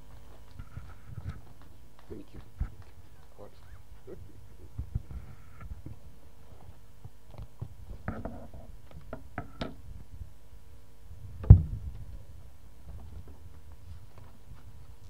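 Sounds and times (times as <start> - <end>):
microphone knocks and rustles: 0.0 - 3.0, 4.7 - 10.2, 11.2 - 12.2, 12.8 - 15.0
loud sharp microphone thump: 11.4 - 12.0.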